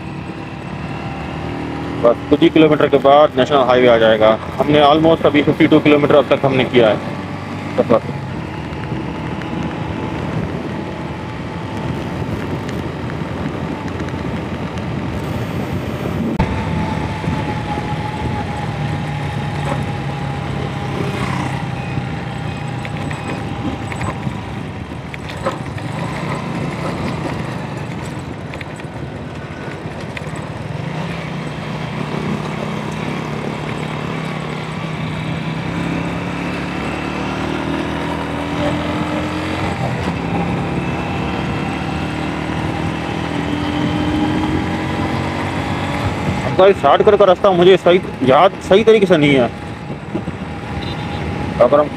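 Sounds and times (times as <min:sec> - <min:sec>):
motorcycle engine running: 0:00.0 - 0:51.9
wind on microphone: 0:07.0 - 0:31.4, 0:36.8 - 0:47.0.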